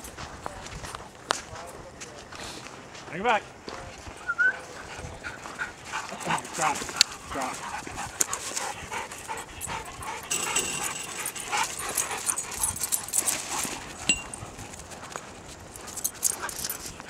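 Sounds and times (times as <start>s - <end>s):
dogs panting: 4.0s - 17.0s.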